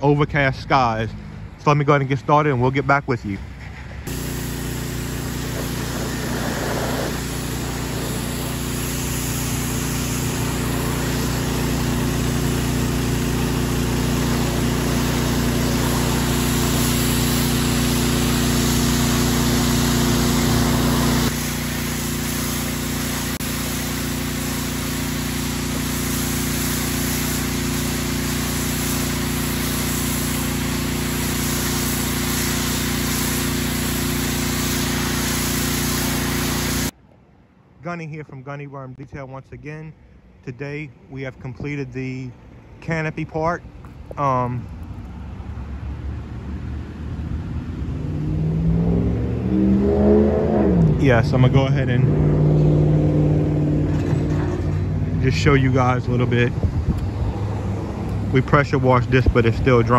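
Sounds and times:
high-pressure water jet hissing: 4.0 - 37.0, 58.0 - 59.9
pressure washer engine running: 4.0 - 37.0, 50.0 - 59.9.

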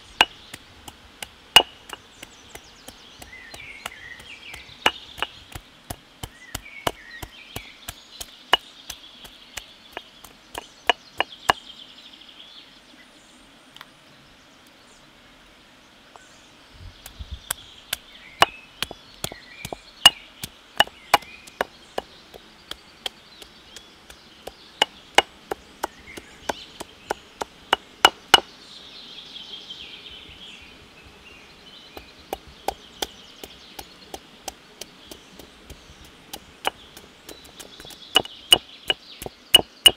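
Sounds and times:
knife chopping on wooden board: 20.8 - 22.1, 36.3 - 39.9.

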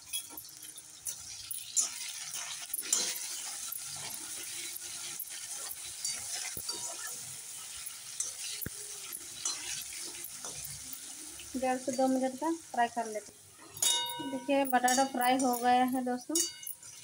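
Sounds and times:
potatoes sizzling in hot oil: 0.0 - 17.0
metal spatula scraping pan: 0.1 - 11.1.

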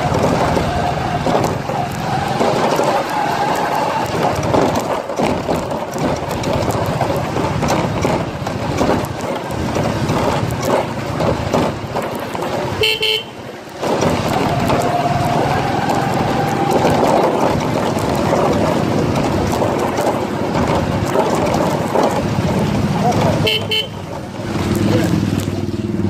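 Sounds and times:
motorcycle engine: 0.0 - 26.0
rattling: 0.0 - 26.0
wind: 0.0 - 26.0
vehicle horn toot: 12.8 - 13.4, 23.4 - 24.0.

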